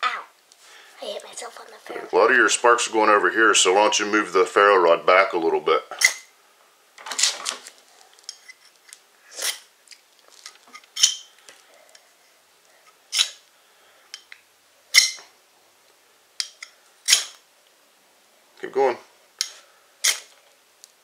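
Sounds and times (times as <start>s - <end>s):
knife scraping ferro rod: 13.1s - 13.4s, 20.0s - 20.3s.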